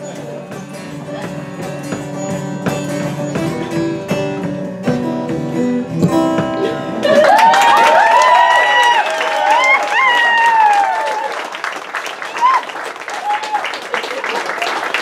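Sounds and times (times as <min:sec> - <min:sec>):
acoustic guitar playing: 0:00.0 - 0:08.2
crowd cheering: 0:07.0 - 0:15.0.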